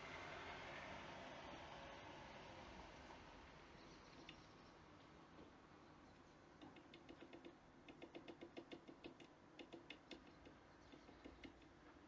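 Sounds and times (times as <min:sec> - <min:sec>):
bird pecking on wooden perch: 0:06.6 - 0:10.3.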